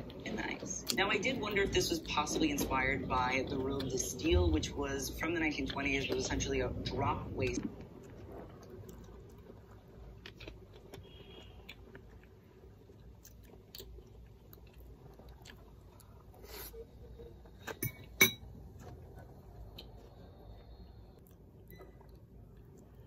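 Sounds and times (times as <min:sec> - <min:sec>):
person chewing fruit: 0:07.6 - 0:23.0.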